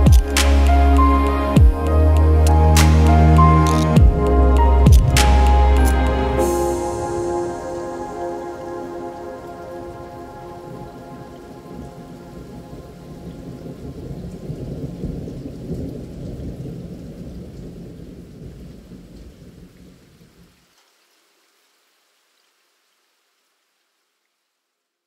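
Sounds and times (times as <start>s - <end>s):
ambient music: 0.0s - 14.0s
steady rain: 0.0s - 25.0s
rolling thunder: 2.8s - 19.8s.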